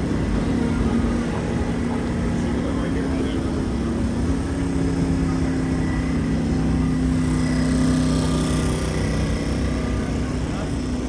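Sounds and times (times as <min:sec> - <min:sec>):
city street noise: 0:00.0 - 0:11.0
vehicle engine running: 0:00.0 - 0:11.0.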